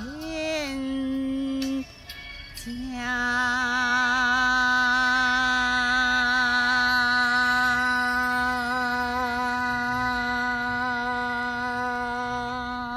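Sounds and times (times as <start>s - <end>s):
woman singing a long note: 2.6s - 12.9s.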